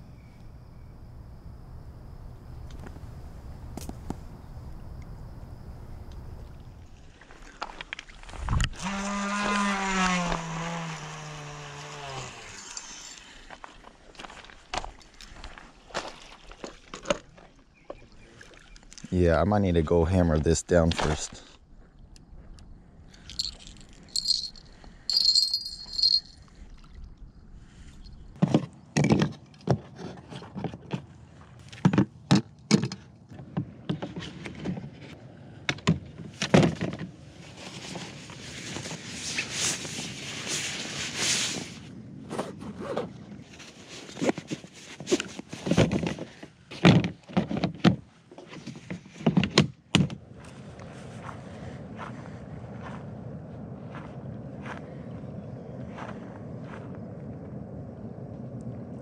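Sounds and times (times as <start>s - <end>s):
metallic clinking: 23.3s - 26.4s.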